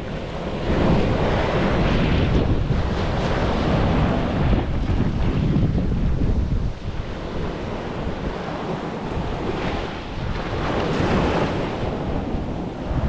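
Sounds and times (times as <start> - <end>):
ocean surf washing on beach: 0.0 - 13.0
wind buffeting microphone: 0.0 - 13.0.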